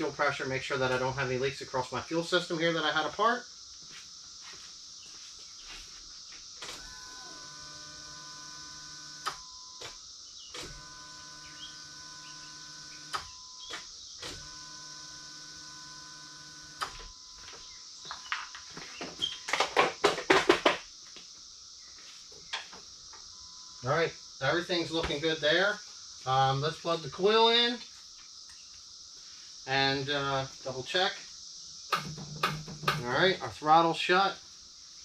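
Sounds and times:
electric fuel pump whirring: 6.6s - 17.5s, 31.9s - 33.1s
loud knocks and rattling: 31.9s - 33.0s.

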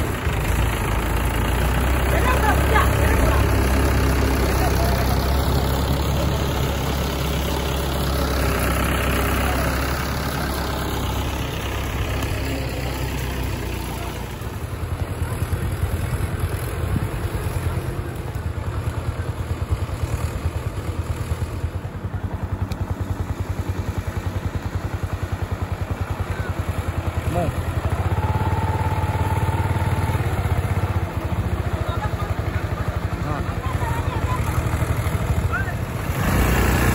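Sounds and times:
tractor diesel engine running: 0.0s - 36.9s.

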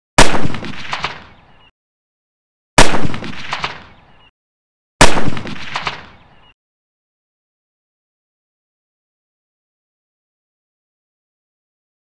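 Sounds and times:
rifle gunshots with echo: 0.2s - 1.3s, 2.8s - 4.0s, 5.0s - 6.2s.

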